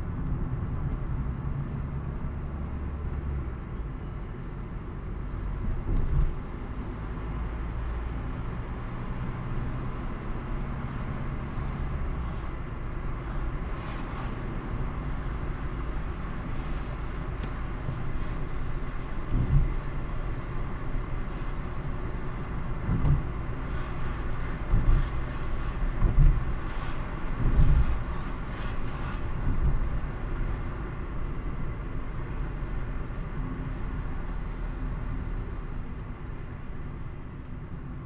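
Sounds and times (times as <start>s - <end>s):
car engine and tyre rumble: 0.0s - 38.0s
low thumps: 22.8s - 23.4s.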